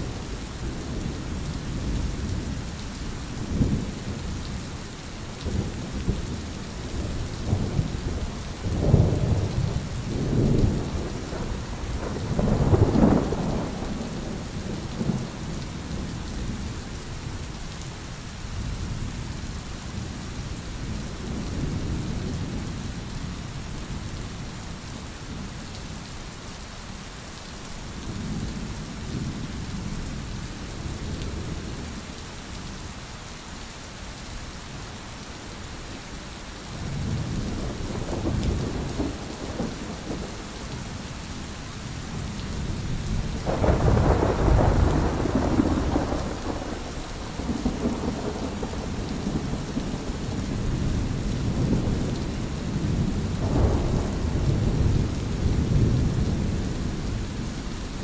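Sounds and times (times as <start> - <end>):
steady rain: 0.0 - 58.0
thunder rumbling: 5.4 - 16.6, 36.8 - 40.7, 42.2 - 58.0.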